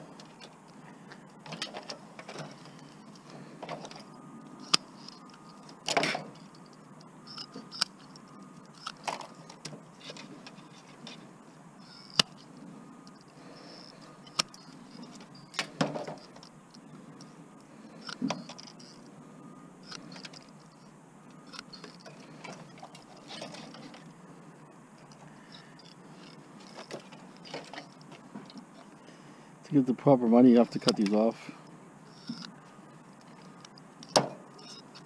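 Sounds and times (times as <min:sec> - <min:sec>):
clicks and rattles of plastic parts: 0:01.4 - 0:06.7, 0:07.3 - 0:11.2.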